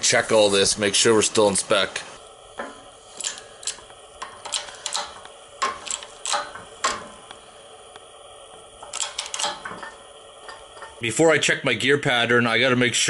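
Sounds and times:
sharp metallic clicks: 0:03.2 - 0:08.1, 0:08.8 - 0:10.9.

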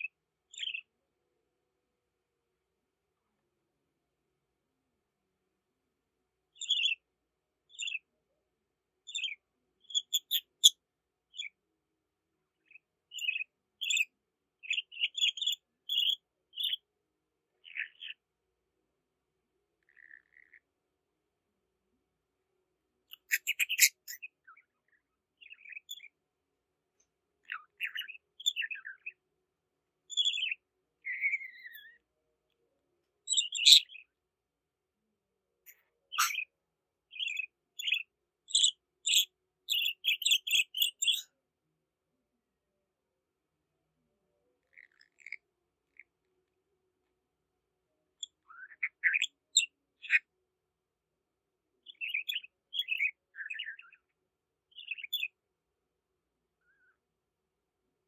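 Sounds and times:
budgerigar chirping: 0:09.1 - 0:10.8, 0:13.1 - 0:16.8, 0:23.1 - 0:24.3, 0:30.1 - 0:31.9, 0:33.3 - 0:34.0, 0:36.1 - 0:36.5, 0:37.1 - 0:41.2.

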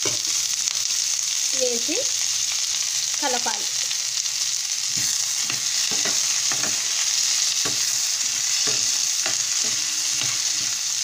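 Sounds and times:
onions sizzling in oil: 0:00.0 - 0:11.0
spatula scraping pan: 0:04.8 - 0:11.0.

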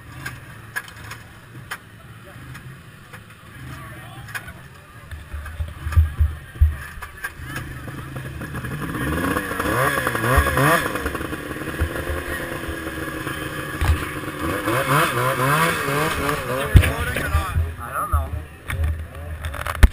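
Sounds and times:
snowmobile engine revving: 0:00.0 - 0:19.8
sharp thumps: 0:15.7 - 0:19.9.

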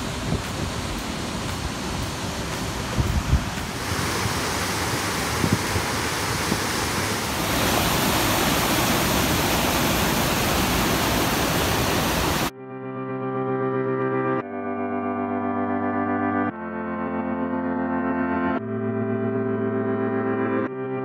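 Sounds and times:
white water rushing: 0:00.0 - 0:12.5.

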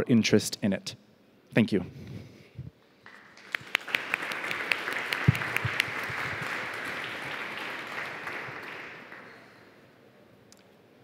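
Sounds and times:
audience applauding: 0:03.1 - 0:09.7.

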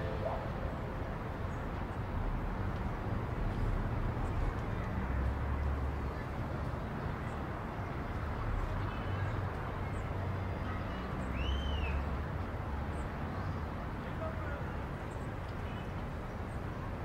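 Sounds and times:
distant traffic hum: 0:00.0 - 0:17.0.

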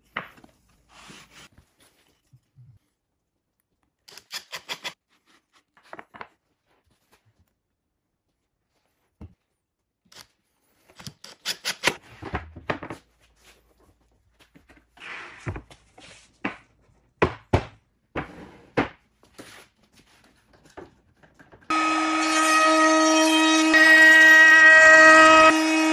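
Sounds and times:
trim router whining: 0:21.7 - 0:25.9.

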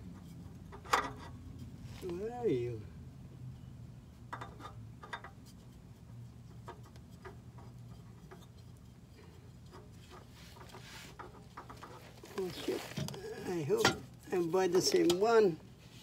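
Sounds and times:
clicks and scrapes of oil filter: 0:00.0 - 0:01.8, 0:04.3 - 0:14.2
steady low hum: 0:00.0 - 0:14.9.

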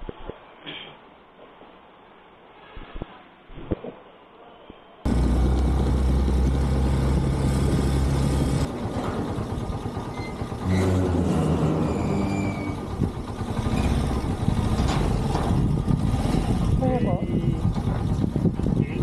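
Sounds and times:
motorcycle engine running: 0:05.1 - 0:19.0.

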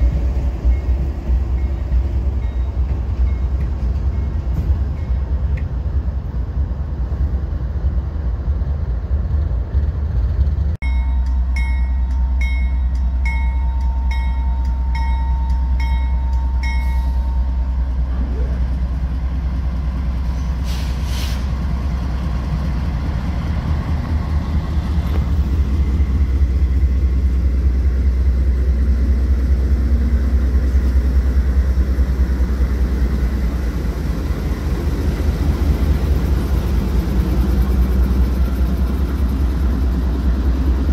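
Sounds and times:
train bell ringing: 0:00.0 - 0:05.4, 0:10.8 - 0:18.6
diesel locomotive engine rumble: 0:00.0 - 0:40.9
freight train rolling past: 0:00.0 - 0:40.9
brief hiss: 0:20.4 - 0:21.6.

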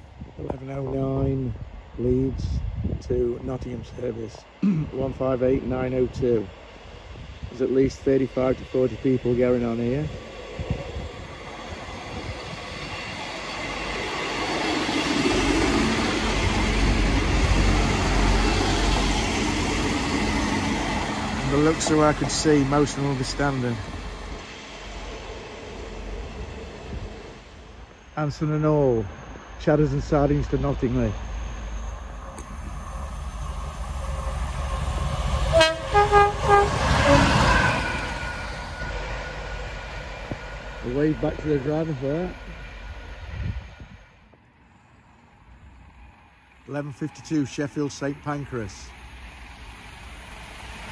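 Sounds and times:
diesel train rumbling: 0:00.0 - 0:50.9
locomotive horn blasts: 0:35.5 - 0:37.6.

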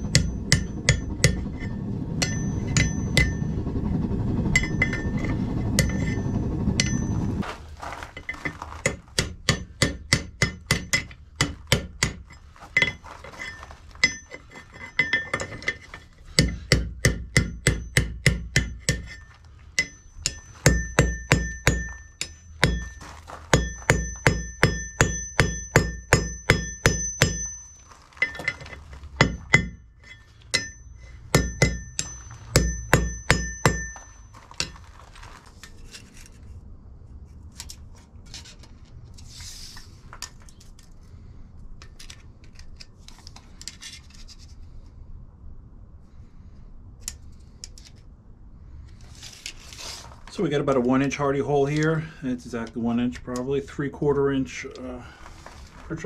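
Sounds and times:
hammer striking anvil: 0:00.0 - 0:03.5, 0:04.6 - 0:06.2, 0:06.8 - 0:07.2, 0:08.3 - 0:12.2, 0:16.4 - 0:19.2, 0:19.8 - 0:34.8
loud low steady noise: 0:00.0 - 0:07.4.

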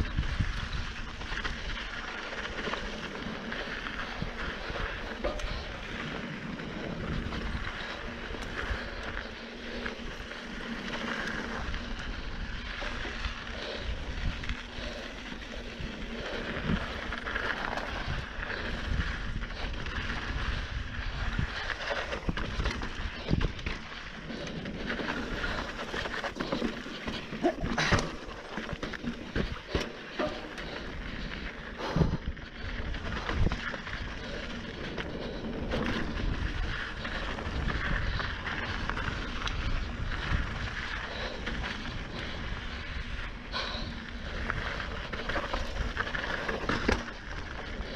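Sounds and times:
wind on microphone: 0:00.0 - 0:01.6
tyres rolling over dirt and rock: 0:00.0 - 0:47.9
bike clunks and rattles: 0:25.4 - 0:31.2.

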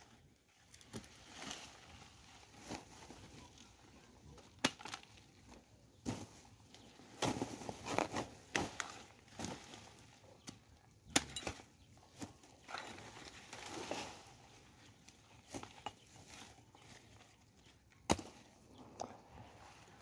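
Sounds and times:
knocks and chops of roots: 0:10.4 - 0:11.7, 0:18.0 - 0:18.5.

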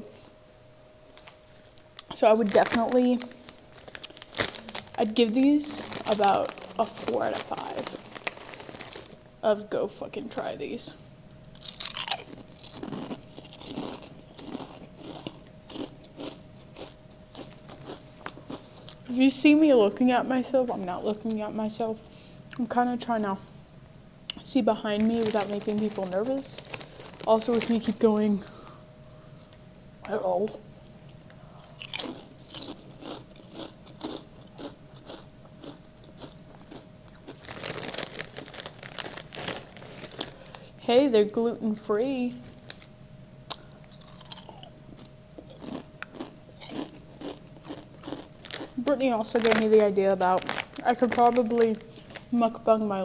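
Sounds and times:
chewing crunchy potato chips: 0:02.0 - 0:09.2, 0:11.5 - 0:19.1, 0:25.0 - 0:28.0, 0:31.6 - 0:40.7, 0:42.4 - 0:52.4.

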